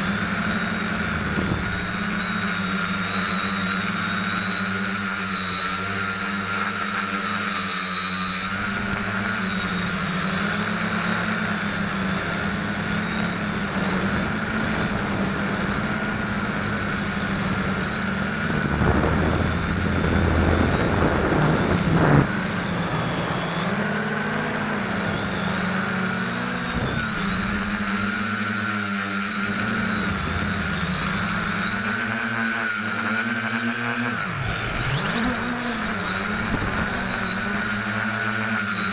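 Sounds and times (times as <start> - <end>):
quadcopter motors whining: 0.0 - 38.9
loud rushing noise: 13.6 - 24.9.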